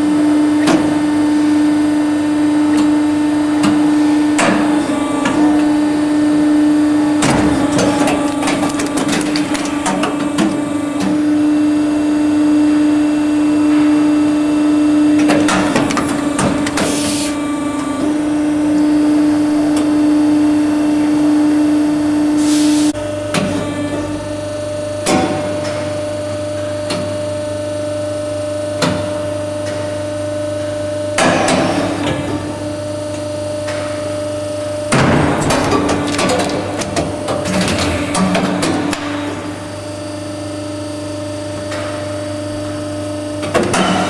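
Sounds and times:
machine humming: 0:00.0 - 0:28.6.

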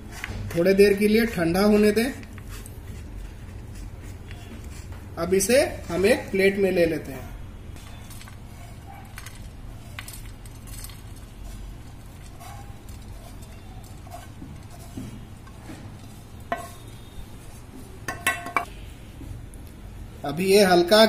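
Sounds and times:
wooden spatula scraping a pan: 0:07.8 - 0:17.7.

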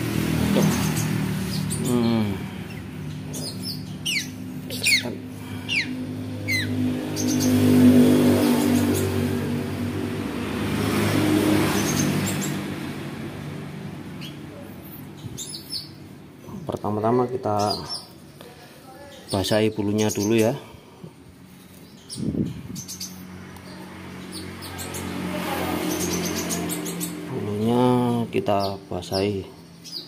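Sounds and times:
vehicle engine drone: 0:00.0 - 0:18.5, 0:19.5 - 0:30.0
bird chirps: 0:00.6 - 0:07.8, 0:14.2 - 0:20.6, 0:28.5 - 0:30.0.

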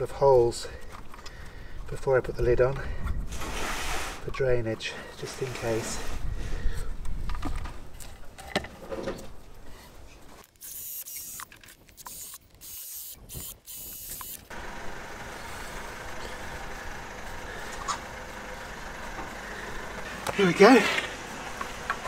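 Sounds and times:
cordless drill boring into wood: 0:10.6 - 0:14.6.

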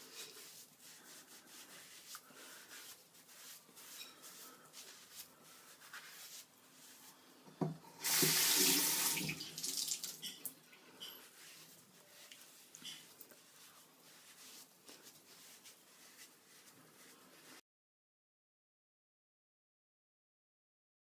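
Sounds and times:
sponge rubbing on skin: 0:00.0 - 0:07.3, 0:08.0 - 0:09.3, 0:11.0 - 0:17.6
tap water splashing into basin: 0:07.6 - 0:10.5.

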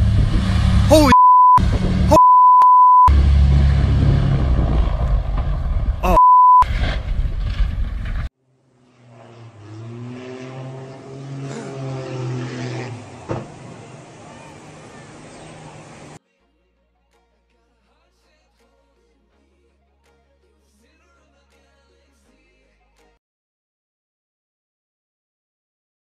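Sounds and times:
loud low rumble: 0:00.0 - 0:02.2, 0:03.1 - 0:08.3
censor bleeps: 0:00.9 - 0:03.1, 0:06.0 - 0:06.6.

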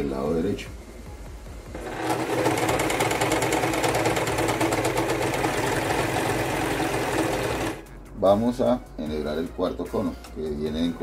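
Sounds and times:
serger running: 0:01.7 - 0:07.8.

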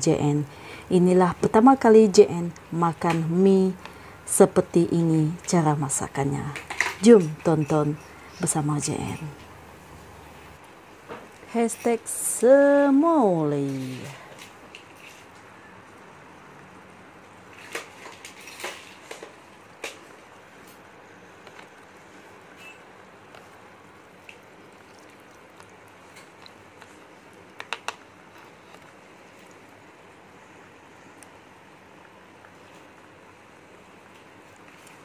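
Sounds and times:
chopsticks stirring noodles in soup: 0:21.4 - 0:30.0.

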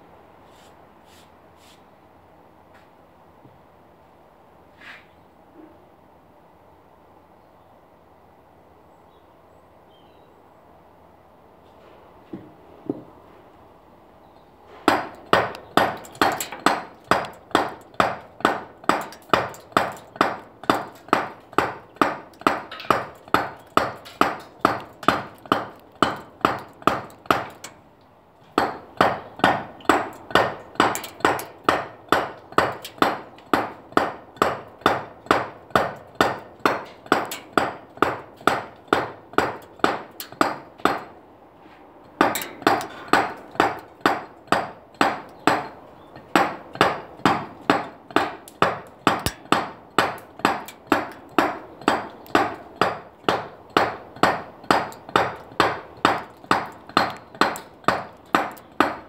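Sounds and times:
mallet striking chisel into stone: 0:46.4 - 0:59.0.

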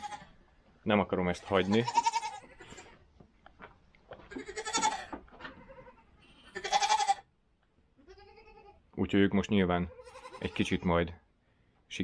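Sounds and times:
goat bleating: 0:00.0 - 0:00.4, 0:01.4 - 0:03.1, 0:04.2 - 0:07.3, 0:08.0 - 0:08.9, 0:09.7 - 0:11.1.

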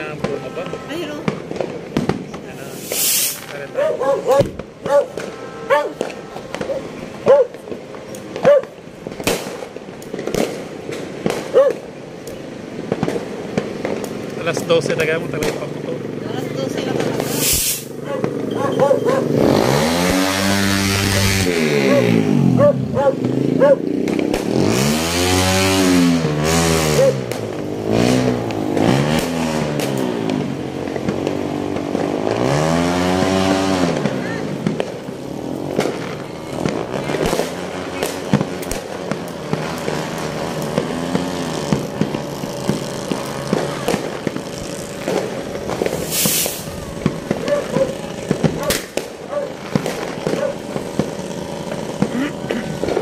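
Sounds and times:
distant fireworks bursting: 0:00.0 - 0:53.0
motorcycle engine revving: 0:14.2 - 0:53.0.

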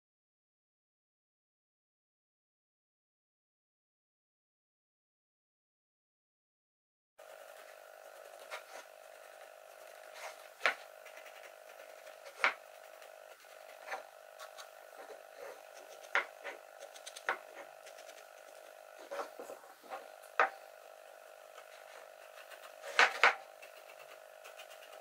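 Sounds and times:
faint steady hum: 0:07.2 - 0:25.0.

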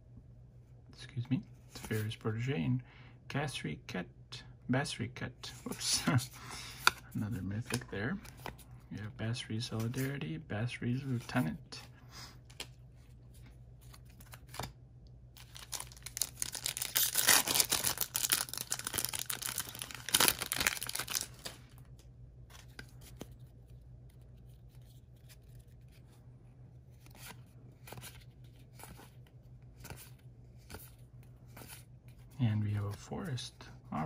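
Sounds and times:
handling cards: 0:05.5 - 0:10.2, 0:10.8 - 0:34.0
foil wrapper tearing and crinkling: 0:15.4 - 0:21.6.

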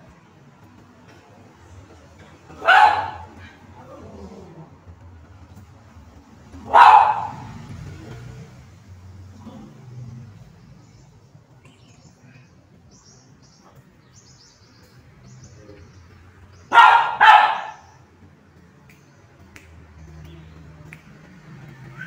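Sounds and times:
dog barking: 0:02.6 - 0:03.6, 0:06.6 - 0:07.6, 0:16.7 - 0:18.0.

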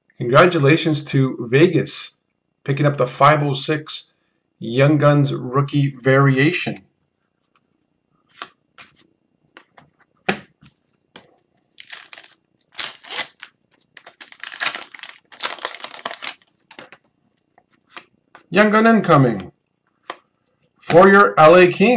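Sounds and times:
cards clicking: 0:08.3 - 0:17.1, 0:17.7 - 0:18.5, 0:19.4 - 0:20.3
foil wrapper crinkling and tearing: 0:11.6 - 0:17.1.

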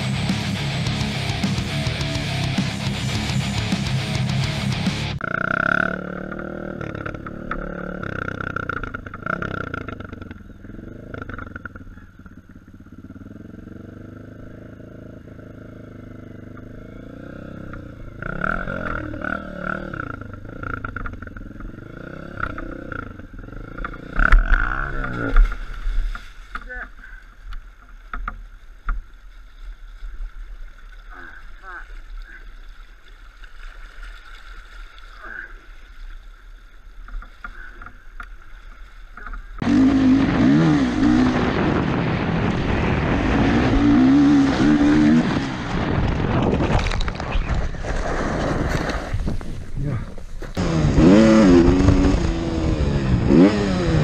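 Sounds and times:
dirt bike engine revving: 0:00.0 - 0:25.7, 0:39.6 - 0:46.6, 0:49.7 - 0:54.0
faint water: 0:05.2 - 0:40.2
motorbike crashing and scraping: 0:39.6 - 0:54.0.

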